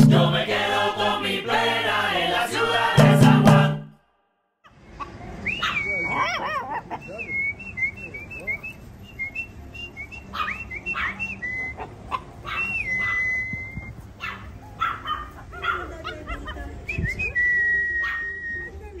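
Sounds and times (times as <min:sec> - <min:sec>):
small dogs yipping: 0:05.0 - 0:07.2, 0:10.2 - 0:16.8, 0:17.9 - 0:18.8.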